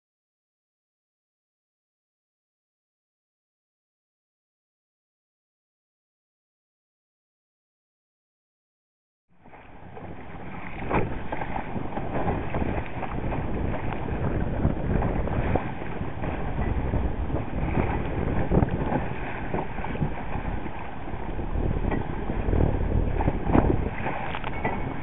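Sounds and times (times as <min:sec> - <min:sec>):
water rushing against a hull: 0:09.3 - 0:25.0
wind buffeting the microphone: 0:09.4 - 0:25.0
sharp wave slaps: 0:10.5 - 0:14.1, 0:21.8 - 0:25.0.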